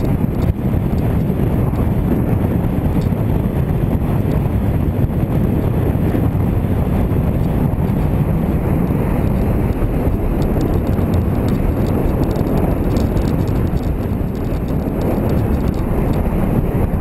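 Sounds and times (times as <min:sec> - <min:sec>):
rapid rattling on cobbles: 0:00.0 - 0:02.2, 0:07.2 - 0:17.0
motorcycle engine and road rumble: 0:00.0 - 0:17.0
wind buffeting microphone: 0:00.0 - 0:17.0.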